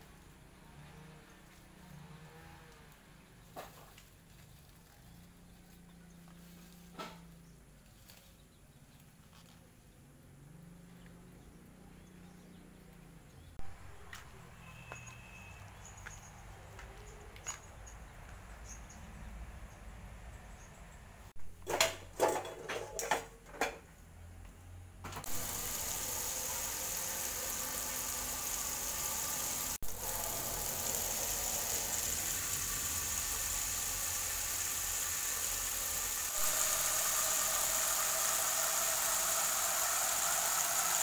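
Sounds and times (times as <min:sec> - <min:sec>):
tap water running into metal pot: 0:25.3 - 0:41.0.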